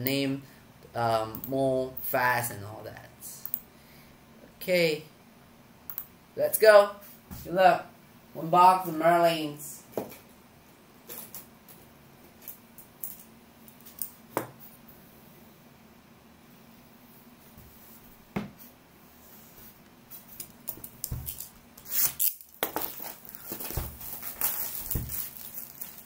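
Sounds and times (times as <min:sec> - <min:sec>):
sharp clicks and taps: 0:05.9 - 0:06.1.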